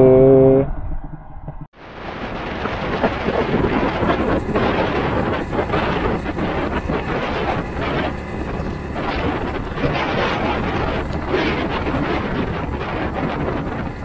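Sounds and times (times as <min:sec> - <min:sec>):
motorcycle road noise: 0:00.0 - 0:14.0
wind buffeting microphone: 0:00.7 - 0:14.0.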